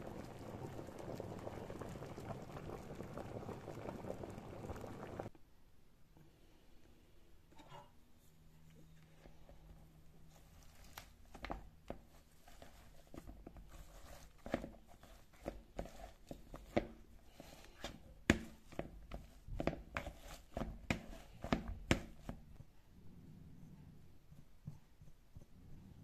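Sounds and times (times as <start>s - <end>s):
potato masher squishing potatoes: 12.0s - 22.6s.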